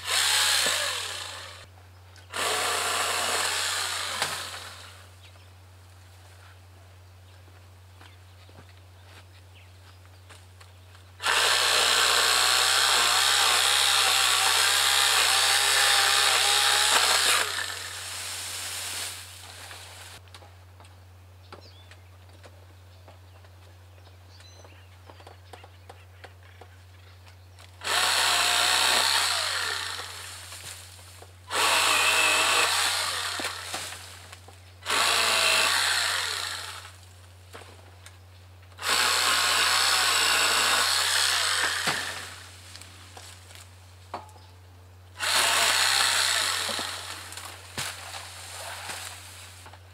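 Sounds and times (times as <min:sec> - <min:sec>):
electric pole saw cutting: 0:00.0 - 0:01.7, 0:02.3 - 0:05.0, 0:11.2 - 0:19.2, 0:27.8 - 0:30.4, 0:31.5 - 0:34.0, 0:34.8 - 0:37.0, 0:38.8 - 0:42.5, 0:45.2 - 0:47.5.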